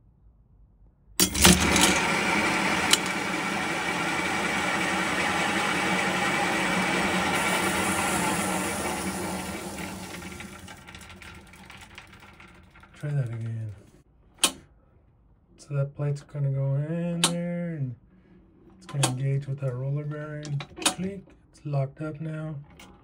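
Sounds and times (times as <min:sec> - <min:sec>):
bicycle wheel and chain spinning: 0:01.2 - 0:14.0.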